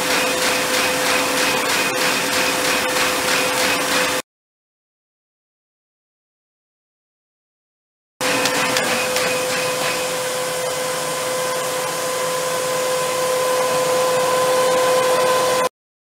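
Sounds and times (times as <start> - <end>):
printer whirring hum: 0.0 - 4.2, 8.2 - 15.7.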